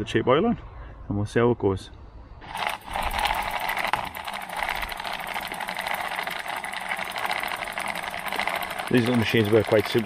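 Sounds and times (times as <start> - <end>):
bike chain rattling in cleaner: 2.5 - 10.0.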